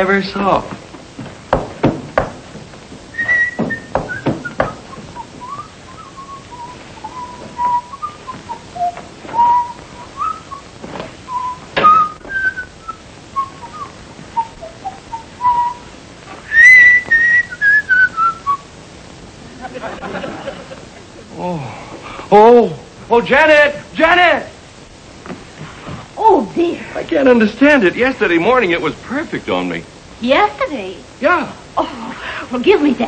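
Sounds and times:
knocks and thumps: 0.7s - 5.5s, 11.8s - 12.4s
person whistling a tune: 3.2s - 10.6s, 11.3s - 12.7s, 13.4s - 15.8s, 16.5s - 18.6s.

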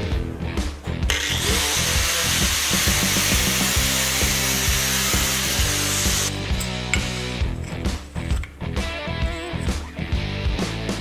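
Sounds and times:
angle grinder grinding steel: 1.1s - 6.8s.

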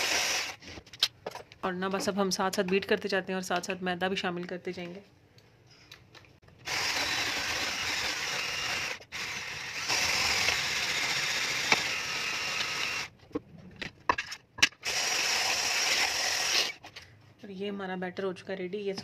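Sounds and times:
hand blender whirring: 0.0s - 0.6s, 6.6s - 13.1s, 14.8s - 16.8s.

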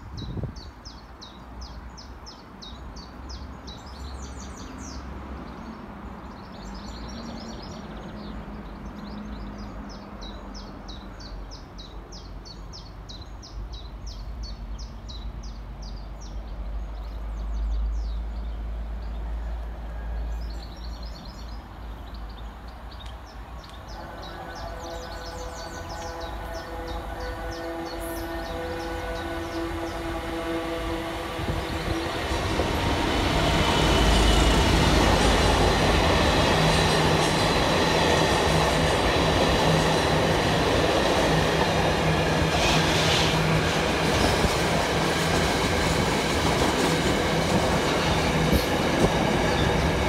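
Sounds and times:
distant diesel locomotive rumble: 13.3s - 50.0s
small birds chirping: 20.4s - 50.0s.

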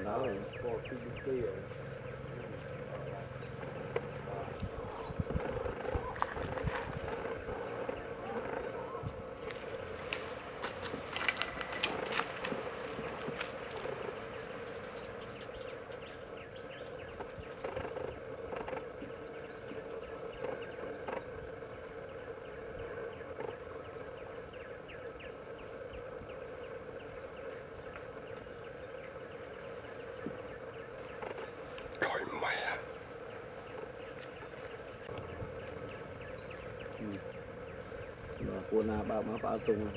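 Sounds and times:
insect-like drone: 0.0s - 39.9s
faint ticks: 22.5s - 24.0s.

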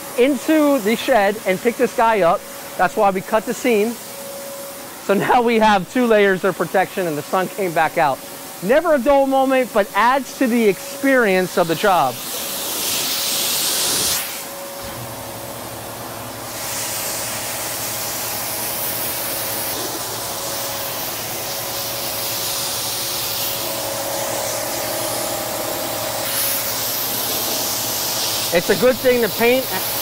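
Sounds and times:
compressed air blow gun hissing: 11.6s - 14.5s, 16.5s - 30.0s.

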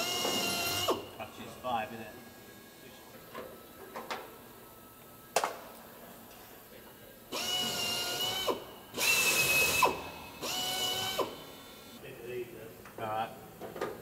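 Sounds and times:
power drill whining into metal: 0.0s - 1.2s, 7.3s - 12.0s.

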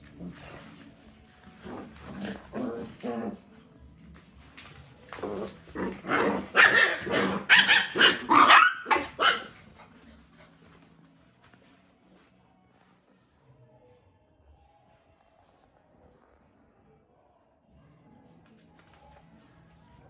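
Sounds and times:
puppies barking and growling: 1.6s - 3.5s, 5.0s - 10.3s.

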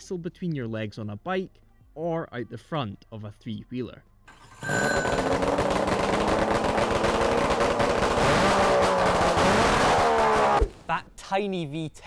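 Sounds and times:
two-stroke engine revving: 4.6s - 10.6s.

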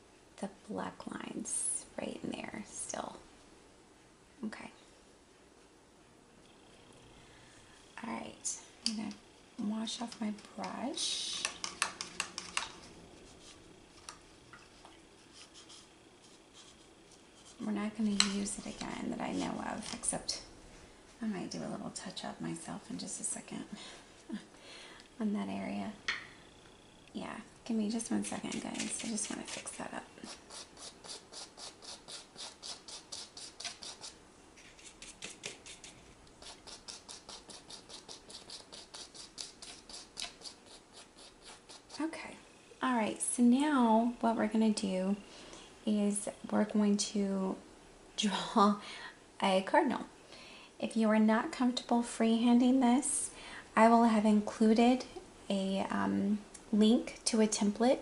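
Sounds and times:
paintbrush scrubbing on canvas: 11.4s - 13.7s, 14.6s - 17.8s, 28.2s - 42.1s.

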